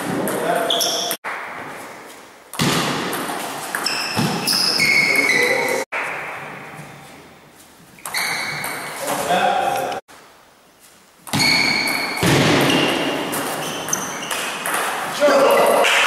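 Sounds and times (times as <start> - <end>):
short high squeaks: 0.6 - 1.2, 3.8 - 5.8, 8.0 - 9.1, 11.3 - 14.8.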